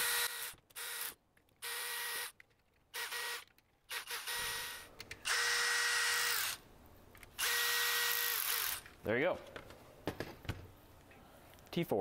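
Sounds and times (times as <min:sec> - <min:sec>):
electric screwdriver whining: 0:03.0 - 0:06.6, 0:07.4 - 0:08.9.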